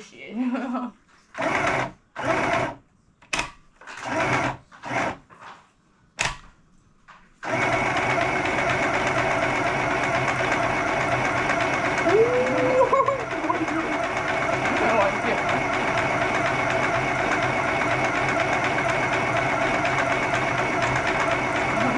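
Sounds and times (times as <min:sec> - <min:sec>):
electric sewing machine stitching: 0:01.4 - 0:02.8, 0:03.9 - 0:05.2, 0:07.4 - 0:21.9.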